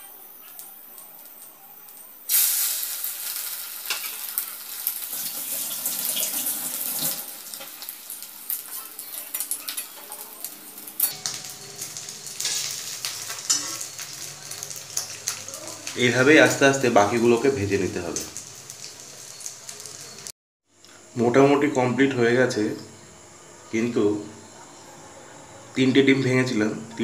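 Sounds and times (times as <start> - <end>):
bread sizzling in oil: 2.3 - 20.3.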